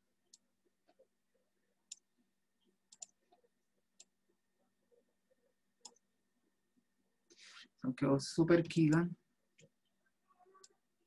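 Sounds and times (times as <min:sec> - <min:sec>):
computer mouse clicks: 0:02.9 - 0:04.2.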